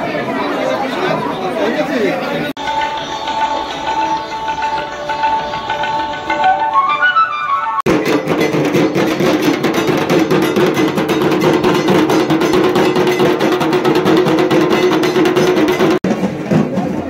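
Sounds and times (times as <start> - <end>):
steady ringing tone: 2.6 - 7.0
kettle drums rolling fast: 7.9 - 17.0.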